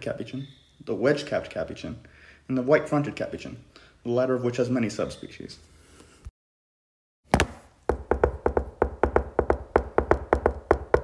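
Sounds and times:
sharp knocking beat with low thump: 7.9s - 11.0s.

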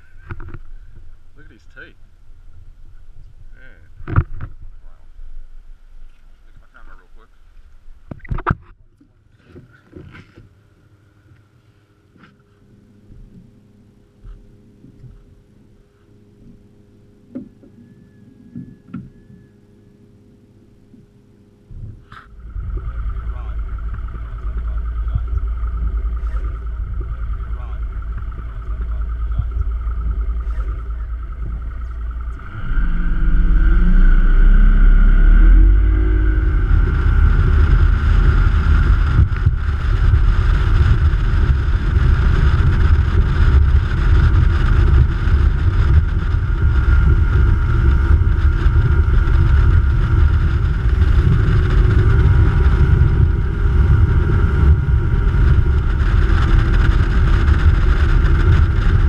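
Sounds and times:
motorboat engine throttling up: 12.2s - 59.0s.

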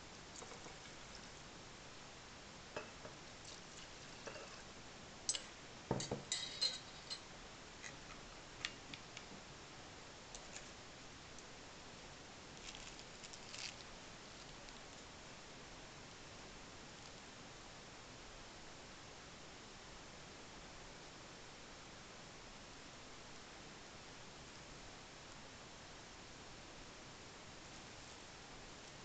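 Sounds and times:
glass beakers clinking: 5.3s - 7.2s.

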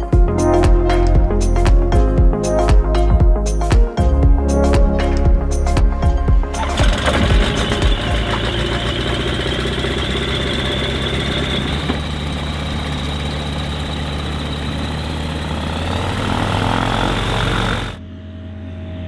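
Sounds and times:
propeller plane engine droning: 6.6s - 19.0s.

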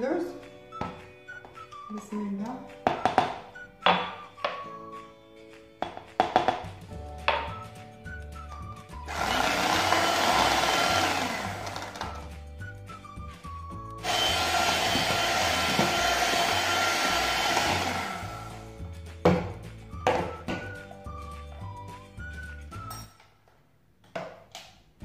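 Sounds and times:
electric hand mixer whining: 9.0s - 12.3s, 14.0s - 18.7s.

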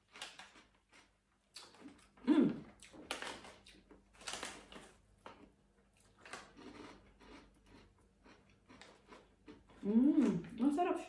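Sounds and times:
plastic packet crinkling: 2.9s - 5.4s.

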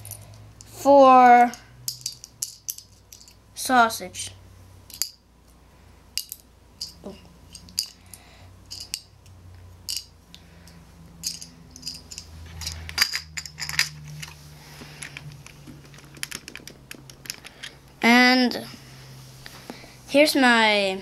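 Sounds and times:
plastic lego pieces clicking: 15.8s - 17.6s.

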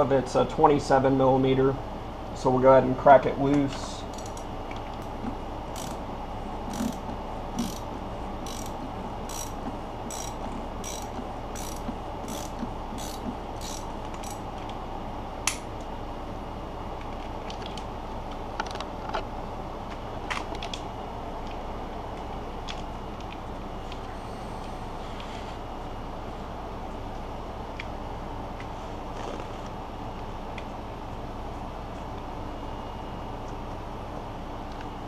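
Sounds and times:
steady low hum: 0.0s - 35.0s
hand ratchet clicking: 4.1s - 5.2s, 5.8s - 6.0s, 6.7s - 14.4s.

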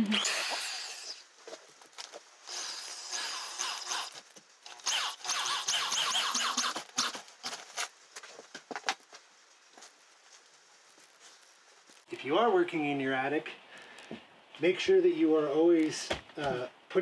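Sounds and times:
electric drill driving screws: 0.0s - 1.2s, 2.4s - 7.2s.

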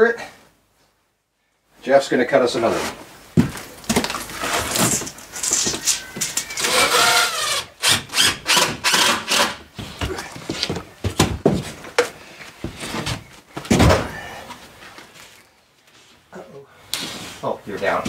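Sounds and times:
power drill whirring: 6.5s - 9.6s.

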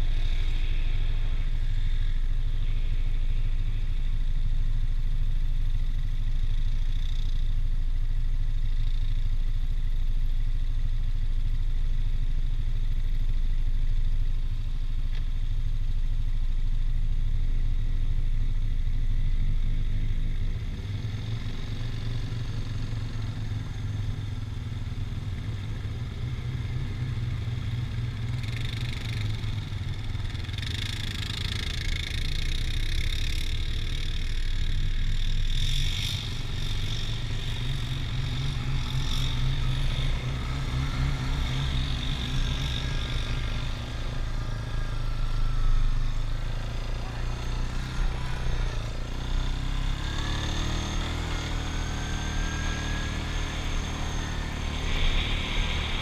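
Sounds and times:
atv engine rumble: 0.0s - 56.0s.

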